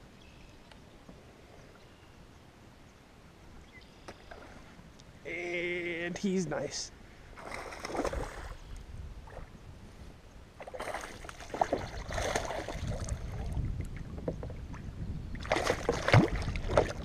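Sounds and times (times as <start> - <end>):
fish thrashing and splashing in water: 7.4 - 8.5, 10.6 - 13.4, 15.4 - 17.0.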